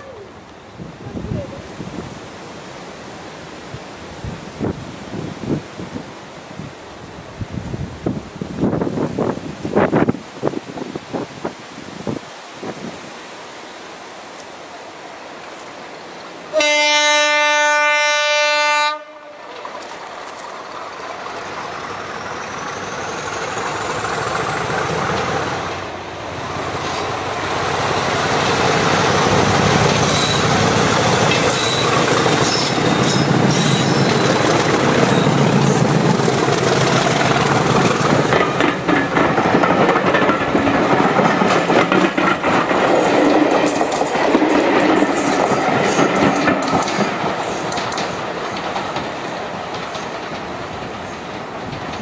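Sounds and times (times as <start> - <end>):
diesel locomotive engine: 14.7 - 52.0
locomotive horn blast: 16.5 - 19.5
train wheels clicking over rail joints: 19.5 - 52.0.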